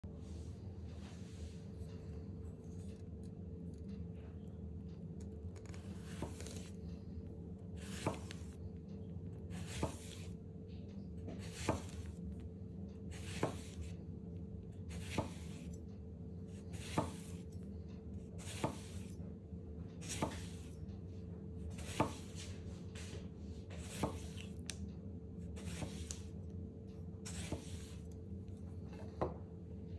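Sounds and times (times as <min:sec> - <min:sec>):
steady low hum: 0:00.0 - 0:29.9
knife slicing lemon on board: 0:05.6 - 0:06.7, 0:07.8 - 0:08.5, 0:09.5 - 0:10.4, 0:11.3 - 0:12.2, 0:13.1 - 0:13.9, 0:14.9 - 0:15.7, 0:16.7 - 0:17.5, 0:18.4 - 0:19.2, 0:20.0 - 0:20.8, 0:23.7 - 0:24.7, 0:25.6 - 0:26.3, 0:27.3 - 0:28.0.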